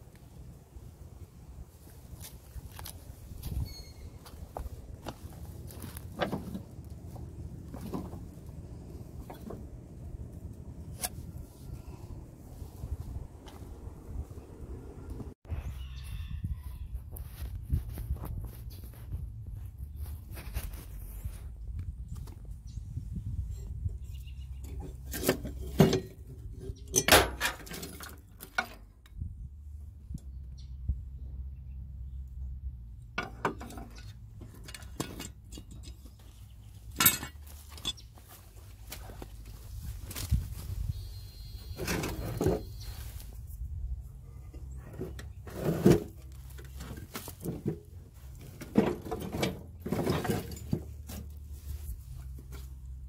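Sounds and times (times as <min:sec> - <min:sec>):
steady low rumble: 0:00.0 - 0:15.7
metal clanking and knocking: 0:09.2 - 0:09.9, 0:24.6 - 0:28.8, 0:33.2 - 0:36.2, 0:36.9 - 0:38.1.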